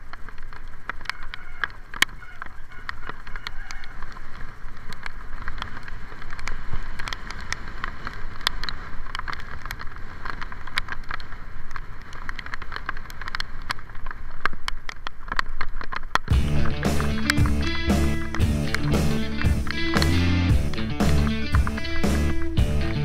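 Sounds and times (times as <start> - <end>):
rain ticking on camera: 0.0 - 23.0
wet road rumble: 0.0 - 23.0.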